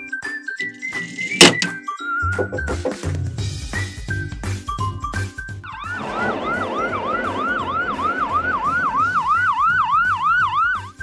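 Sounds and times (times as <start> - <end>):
ambulance siren wailing: 5.6 - 11.0
rushing noise: 5.8 - 10.4.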